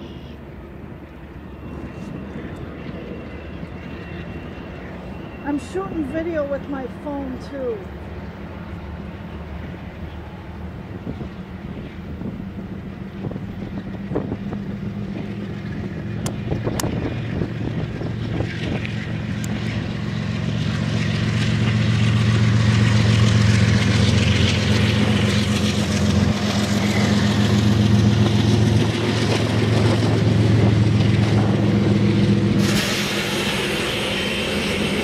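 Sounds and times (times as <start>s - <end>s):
diesel locomotive engines droning: 0.0s - 35.0s
freight cars rolling by: 0.0s - 35.0s.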